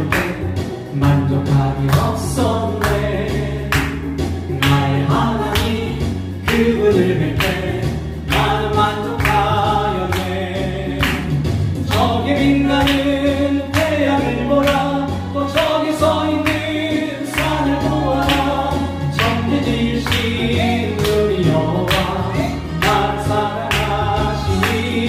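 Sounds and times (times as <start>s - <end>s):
backing accompaniment with beat: 0.0s - 25.0s
man singing into a microphone: 0.0s - 25.0s.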